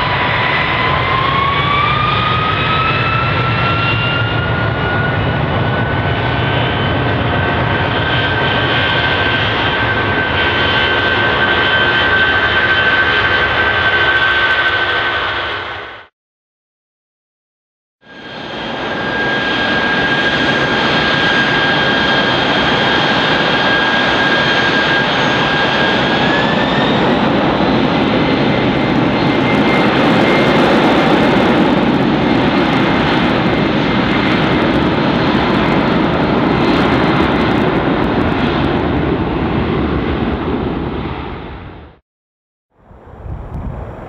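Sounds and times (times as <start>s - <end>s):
aircraft engine roar: 0.0s - 16.1s, 18.0s - 42.0s, 42.7s - 44.0s
high engine whine: 42.8s - 44.0s.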